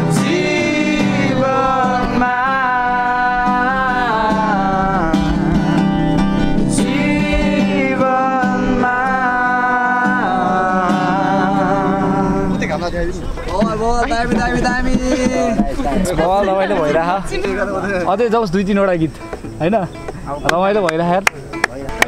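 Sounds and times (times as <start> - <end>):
group of people singing: 0.0 - 12.8, 13.5 - 17.2
acoustic guitar: 0.0 - 22.0.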